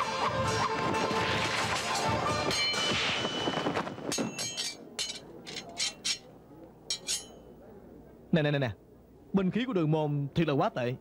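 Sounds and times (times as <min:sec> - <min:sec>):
sharp clinking hits: 0:02.5 - 0:06.3, 0:06.9 - 0:07.4.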